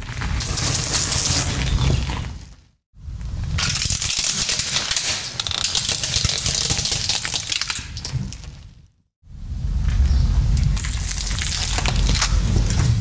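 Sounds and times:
plastic toy cracking under tyre: 3.6 - 8.0, 10.9 - 12.4.

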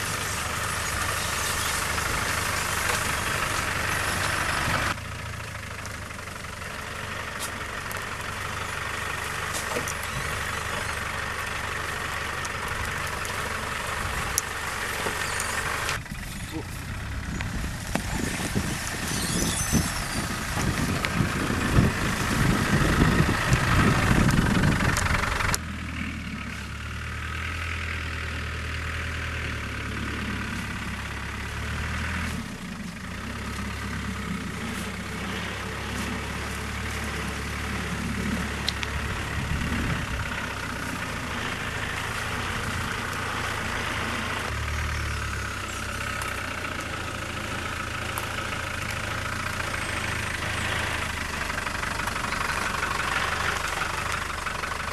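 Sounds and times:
loud rough noise: 0.0 - 5.0, 7.3 - 54.9
diesel engine running at low revs: 0.0 - 54.9.

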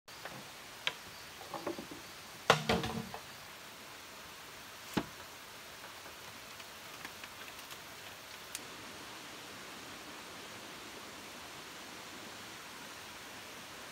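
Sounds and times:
steady hiss: 0.1 - 13.9
bamboo poles knocking: 2.5 - 3.2.

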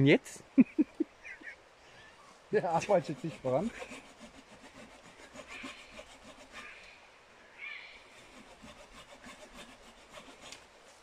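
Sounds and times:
hand saw cutting wood: 2.6 - 6.8, 8.1 - 10.7.

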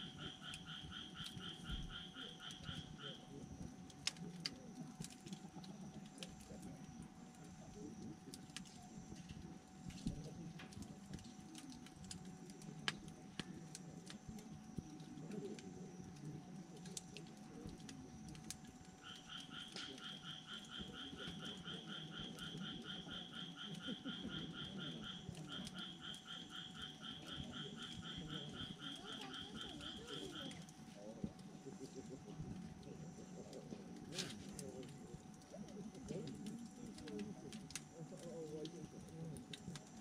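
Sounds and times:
frog rapid pulsed call: 0.0 - 3.3, 19.0 - 30.7
frogs calling: 0.0 - 40.0
wood fire crackling: 0.0 - 40.0.

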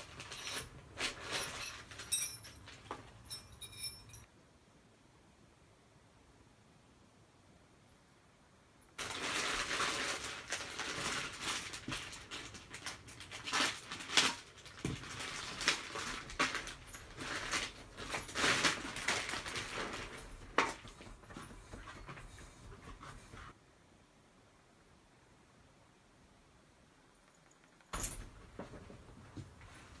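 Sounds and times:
plastic packaging crinkling: 9.0 - 21.0
metal parts clicking and knocking: 27.2 - 28.4.

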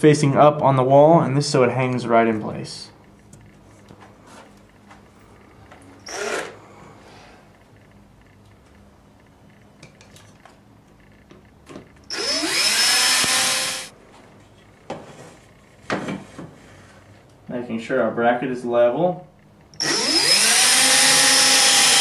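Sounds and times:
electric screwdriver whining: 6.0 - 6.6, 12.1 - 13.9, 19.8 - 22.0.

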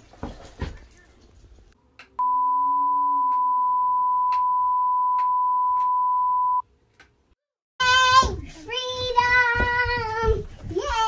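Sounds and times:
long electronic beep: 2.2 - 6.6.

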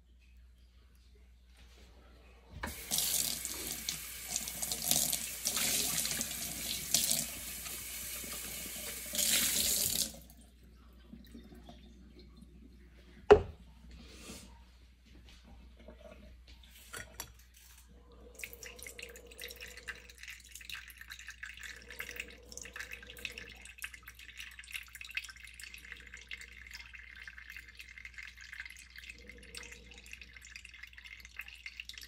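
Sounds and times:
tap water splashing into sink: 2.6 - 10.3.

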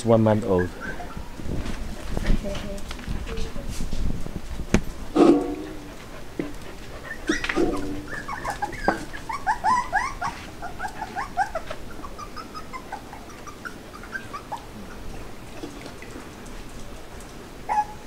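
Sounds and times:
puppies whimpering and squeaking: 0.3 - 2.0, 6.9 - 15.3, 17.7 - 18.0.

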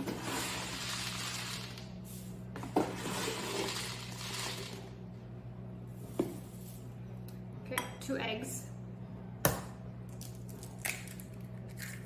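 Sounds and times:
dry oats pouring: 0.1 - 2.2, 2.8 - 4.9.

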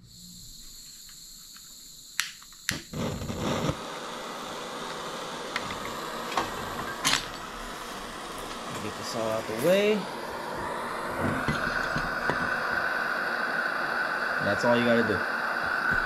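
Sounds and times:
gas hissing from torch nozzle: 0.0 - 16.0
igniter clicks: 1.0 - 10.0
torch flame rushing: 2.7 - 16.0.

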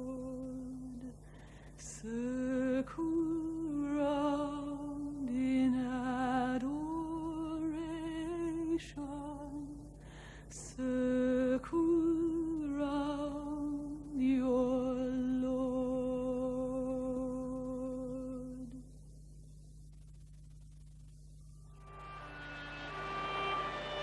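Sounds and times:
singer breathing: 1.2 - 1.8, 10.0 - 10.6.

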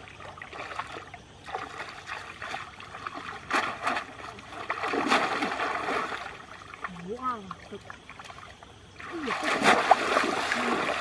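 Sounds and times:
hands splashing in muddy water: 0.6 - 6.5, 9.0 - 11.0.

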